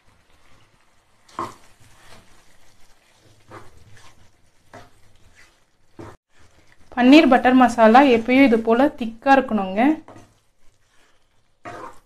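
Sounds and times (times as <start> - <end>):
spatula scraping thick gravy: 0.3 - 6.9, 10.0 - 12.0
spatula knocking pan: 3.3 - 5.1.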